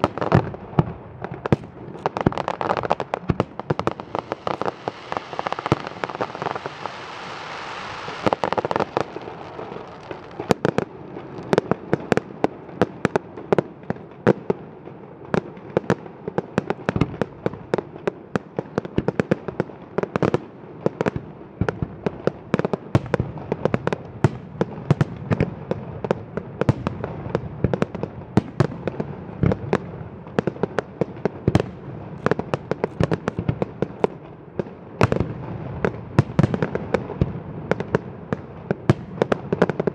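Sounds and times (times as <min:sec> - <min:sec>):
fireworks bangs: 0:00.0 - 0:13.2, 0:22.9 - 0:39.9
steady hiss: 0:03.8 - 0:10.4.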